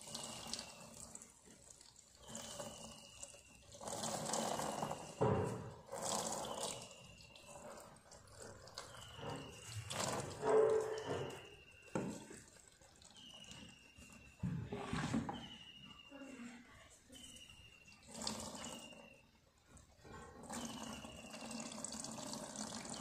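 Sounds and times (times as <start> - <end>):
liquid pouring into water: 0.0 - 14.4, 17.4 - 23.0
faint high falling whistle: 13.2 - 18.0.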